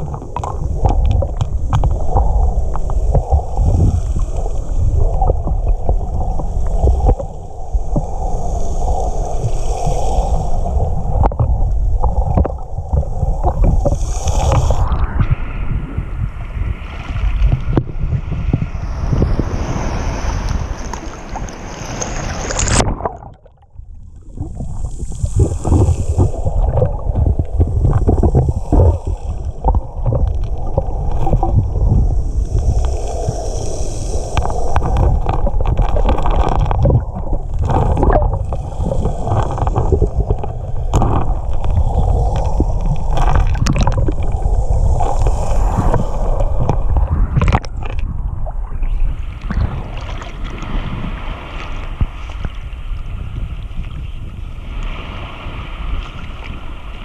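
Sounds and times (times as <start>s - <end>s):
small underwater clicks and knocks: 0.0s - 8.2s, 11.1s - 15.4s, 17.0s - 19.4s, 20.5s - 50.7s, 51.6s - 54.1s
water hissing: 0.0s - 15.2s, 24.2s - 47.7s
muffled underwater rumble: 0.0s - 57.0s.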